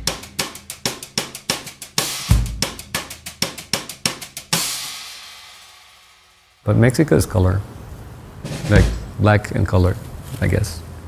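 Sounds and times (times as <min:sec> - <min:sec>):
drum-kit beat: 0:00.0 - 0:06.6, 0:08.4 - 0:09.2
cymbal crash: 0:04.5 - 0:06.7
kick-drum thump: 0:08.5 - 0:09.1.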